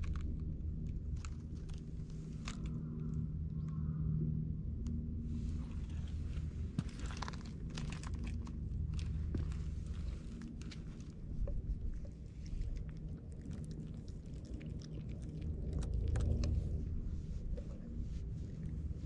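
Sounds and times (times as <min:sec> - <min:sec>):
cat crunching dry food: 0:00.0 - 0:03.2, 0:05.6 - 0:17.0
low rumble: 0:00.0 - 0:19.0.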